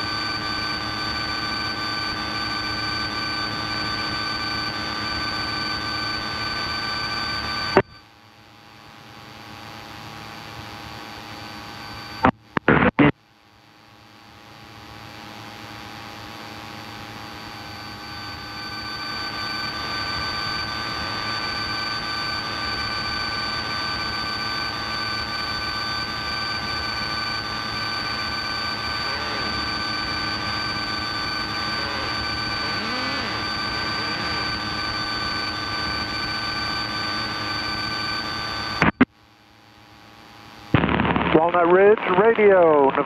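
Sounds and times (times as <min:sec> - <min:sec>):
propeller plane cabin drone: 0:00.0 - 0:09.4, 0:14.8 - 0:39.1.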